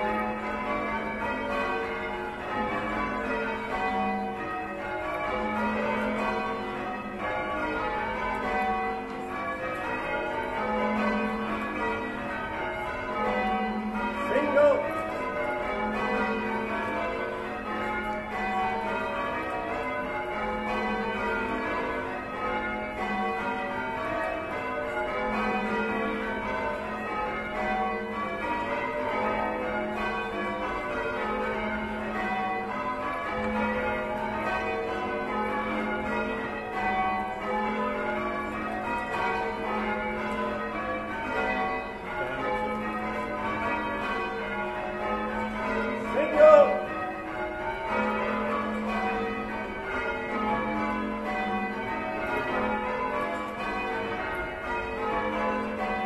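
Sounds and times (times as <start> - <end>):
church bells change ringing: 0.0 - 56.0.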